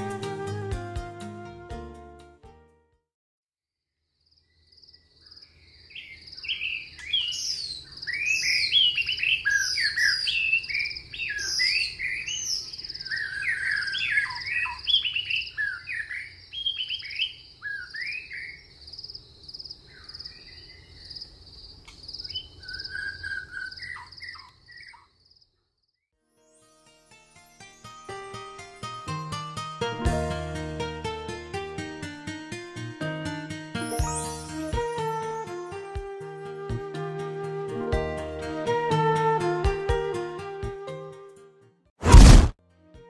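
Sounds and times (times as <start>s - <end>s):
birds chirping and whistling: 5.9s - 18.6s, 22.3s - 25.0s.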